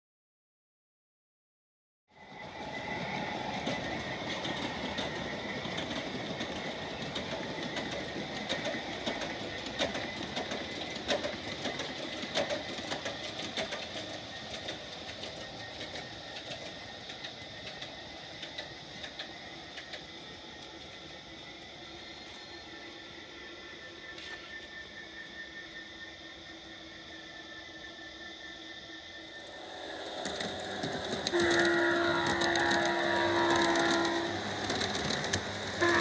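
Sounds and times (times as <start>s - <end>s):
model train rumbling: 2.2s - 36.0s
wheels clicking over rail joints: 2.4s - 22.4s, 29.4s - 36.0s.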